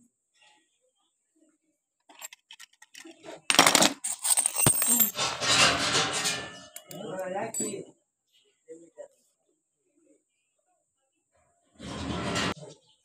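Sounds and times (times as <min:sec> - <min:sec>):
padlocks and keys clinking: 0:02.1 - 0:05.2.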